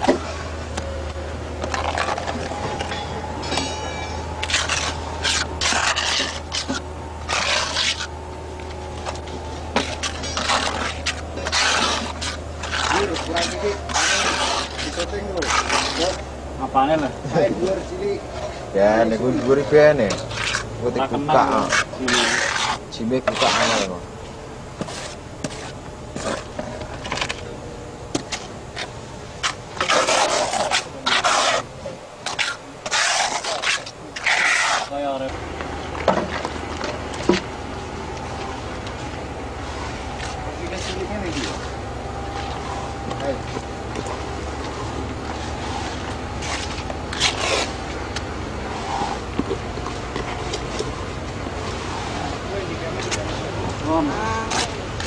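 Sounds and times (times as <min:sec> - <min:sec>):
trowel scraping cement adhesive: 0:01.6 - 0:03.0, 0:04.4 - 0:08.2, 0:09.0 - 0:16.3, 0:18.4 - 0:24.0, 0:24.8 - 0:27.4, 0:28.2 - 0:35.2, 0:42.4 - 0:49.3.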